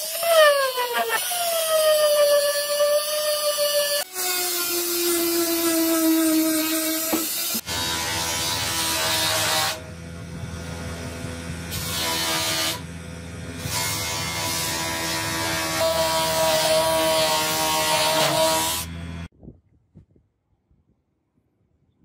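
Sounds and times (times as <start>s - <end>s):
bench grinder motor hum: 6.9s - 19.3s.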